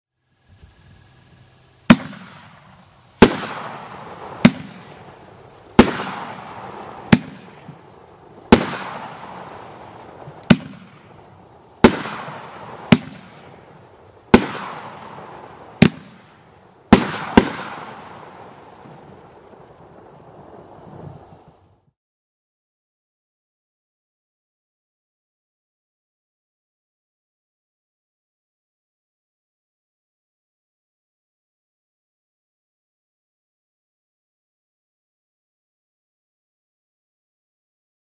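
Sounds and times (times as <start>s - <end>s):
firework bangs with echoing rumble: 1.8s - 21.4s.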